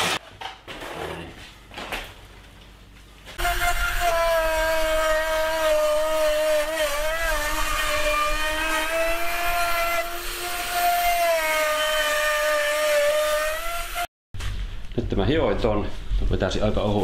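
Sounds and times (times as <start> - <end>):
electric router whining: 3.4 - 14.1.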